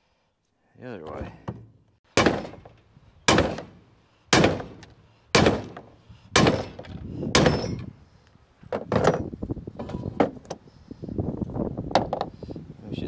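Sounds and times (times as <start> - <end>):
hammer striking metal: 7.4 - 7.9.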